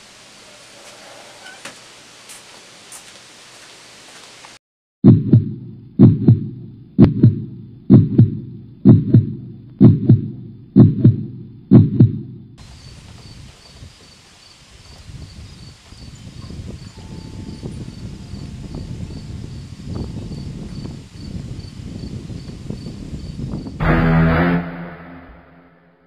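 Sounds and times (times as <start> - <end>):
low double-beat thumps: 5.0 - 12.6, 23.8 - 25.6
rhythmic insect chirping: 12.7 - 23.4.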